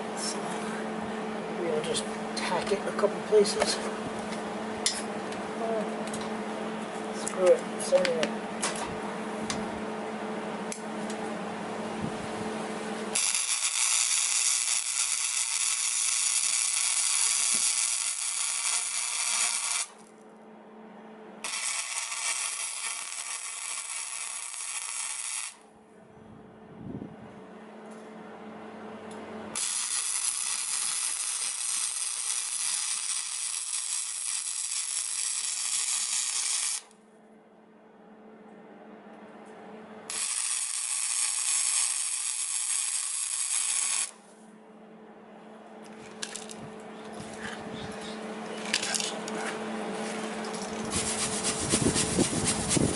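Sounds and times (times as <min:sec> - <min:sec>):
steady low hum: 0:00.0 - 0:52.9
welding arc crackling and hissing: 0:13.1 - 0:20.1, 0:21.4 - 0:25.6, 0:29.6 - 0:36.9, 0:40.1 - 0:44.2, 0:50.6 - 0:52.9.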